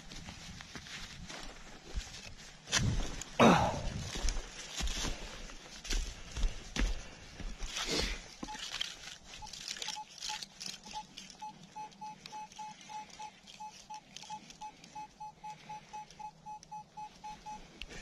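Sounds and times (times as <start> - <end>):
metal detector beeping: 8.4 - 17.8.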